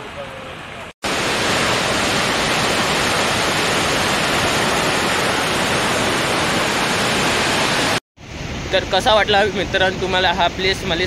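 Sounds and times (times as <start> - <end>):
water rushing from dam spillway: 0.1 - 8.0.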